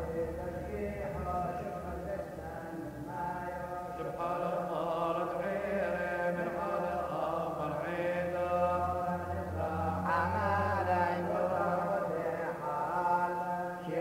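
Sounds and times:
voices singing liturgical chant: 0:00.0 - 0:14.0.

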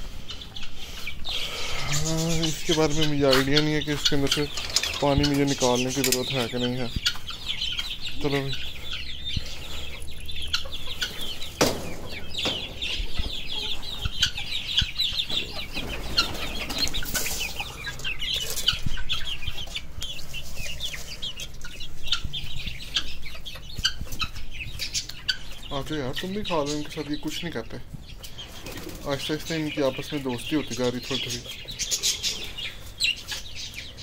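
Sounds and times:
chicks clucking and peeping: 0:00.0 - 0:34.0
wings flapping: 0:15.3 - 0:18.8.

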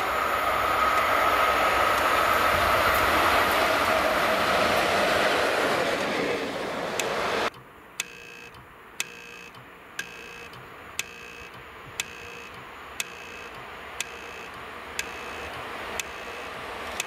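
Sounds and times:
approaching locomotive rumble: 0:00.0 - 0:07.5
sharp metallic ticks: 0:07.0 - 0:17.0.

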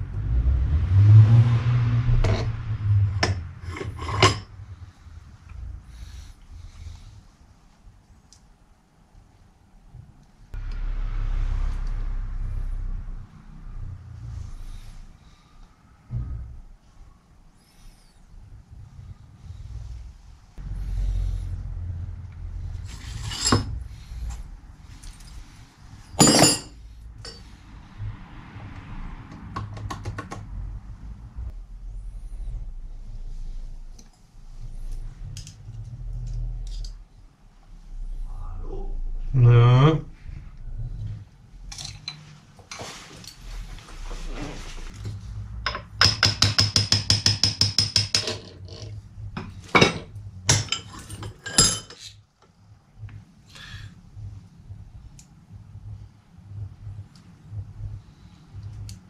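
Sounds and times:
metal clatter: 0:03.2 - 0:04.6
hammer tapping on metal: 0:45.7 - 0:48.4
metal parts clinking on workbench: 0:49.7 - 0:52.1.

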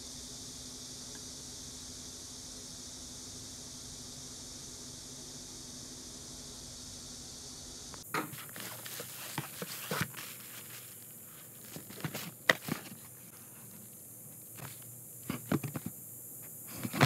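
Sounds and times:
cardboard and paper rustling: 0:08.1 - 0:16.0, 0:16.7 - 0:17.0.

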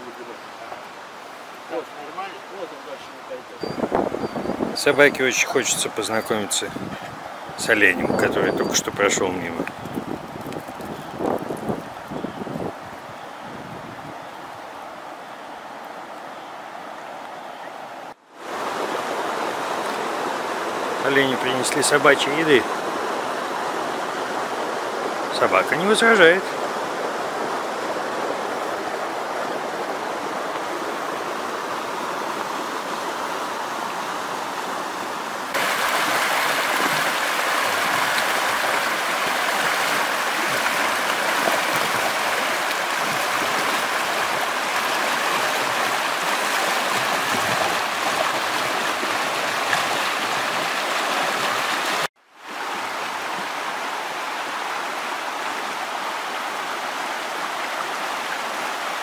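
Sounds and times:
river rapids rushing over rocks: 0:18.4 - 0:59.0.

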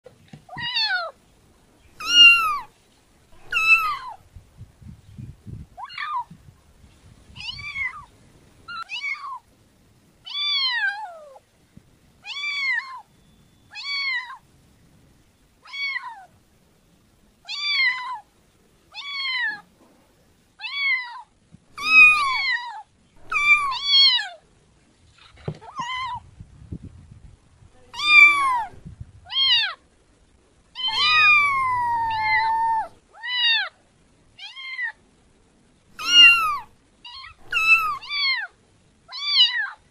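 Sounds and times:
kitten meowing: 0:02.0 - 0:02.7, 0:03.4 - 0:04.2, 0:07.4 - 0:08.1, 0:21.8 - 0:24.3, 0:27.9 - 0:28.7, 0:30.8 - 0:33.7, 0:36.0 - 0:38.5.

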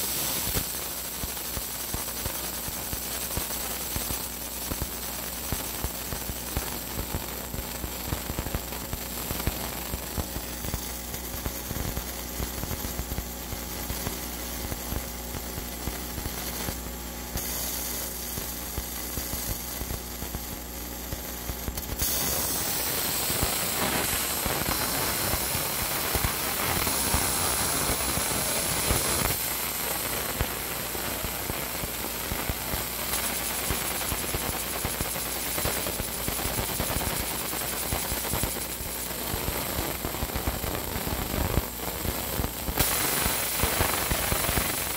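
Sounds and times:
laser engraver crackling: 0:00.1 - 0:44.9
machine hum: 0:21.7 - 0:32.7.

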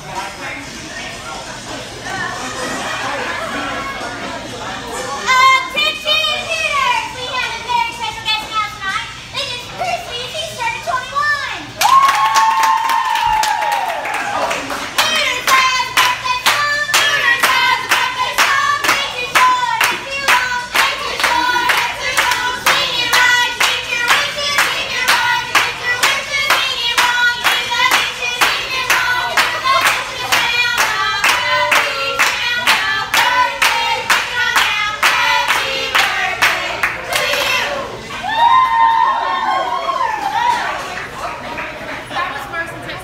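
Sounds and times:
women clapping in rhythm: 0:11.8 - 0:37.6
women singing together: 0:14.9 - 0:38.0.

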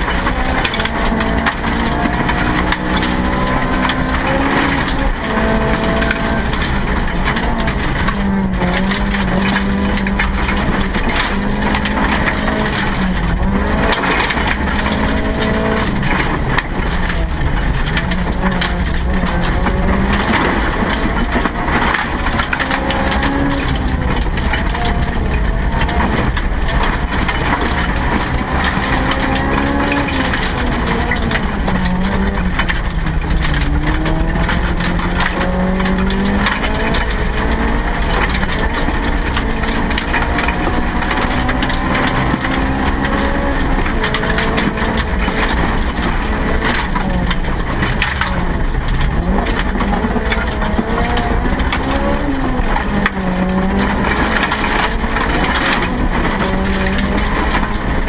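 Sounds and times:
car engine revving: 0:00.0 - 0:58.0
tyres crunching on gravel: 0:00.0 - 0:58.0.

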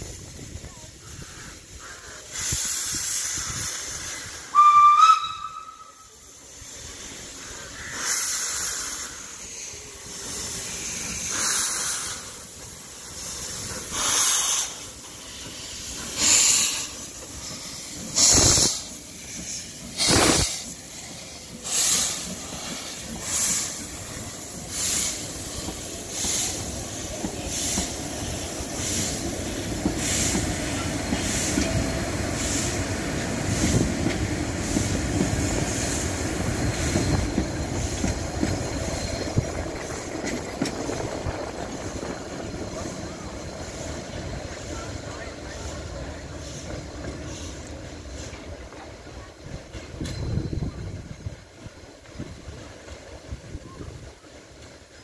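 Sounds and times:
steam hissing: 0:00.0 - 0:55.0
steam whistle: 0:04.4 - 0:06.1.

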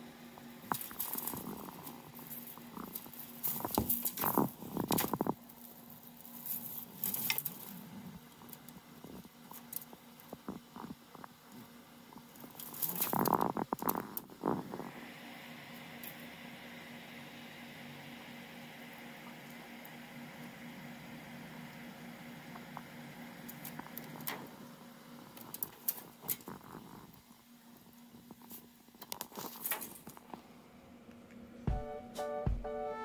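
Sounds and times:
rabbit scrabbling in hay: 0:00.6 - 0:07.8.

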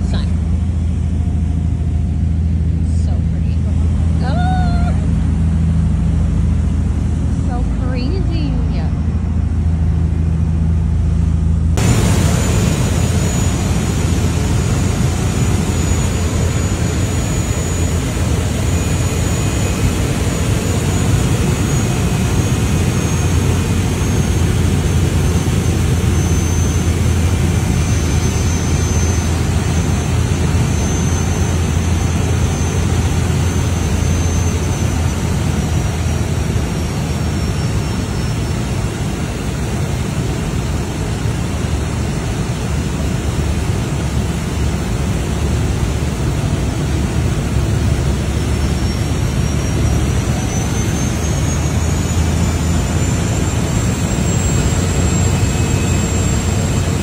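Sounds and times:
boat engine hum: 0:00.0 - 0:57.0
faint high whine: 0:00.0 - 0:57.0
propeller plane engine drone: 0:00.0 - 0:57.0
rushing air: 0:11.8 - 0:37.2.

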